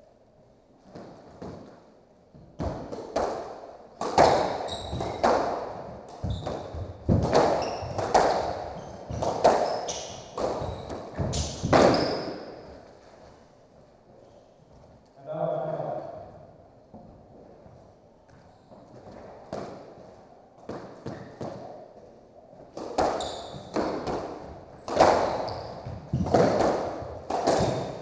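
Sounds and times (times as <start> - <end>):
squash ball hitting rackets and walls: 0.8 - 13.0, 18.7 - 28.0
shoes squeaking on hardwood floor: 4.4 - 13.4, 18.2 - 21.8, 23.0 - 28.0.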